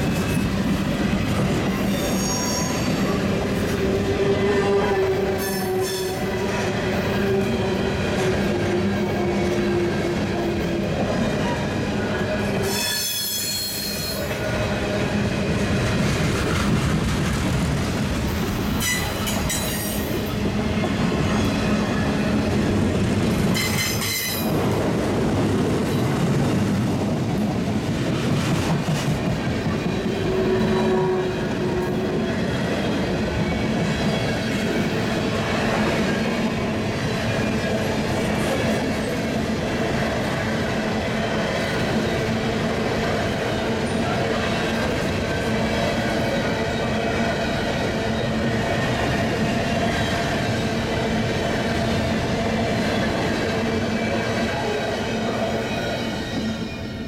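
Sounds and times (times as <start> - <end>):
high-pitched wheel squeals: 1.9 - 3.2, 4.4 - 6.2, 12.6 - 14.3
steel wheels clattering on rails: 15.7 - 40.4.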